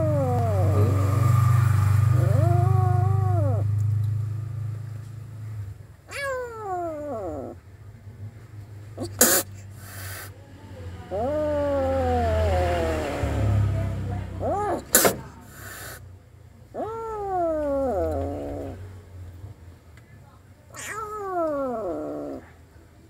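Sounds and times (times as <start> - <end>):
kitten meowing: 0.0 - 1.3, 2.0 - 3.7, 6.1 - 7.6, 9.0 - 10.3, 11.0 - 13.6, 14.4 - 16.0, 16.8 - 18.8, 20.7 - 22.5
kitten hissing: 0.0 - 3.7, 6.1 - 7.6, 9.0 - 10.4, 11.0 - 16.1, 16.8 - 18.8, 20.7 - 22.5.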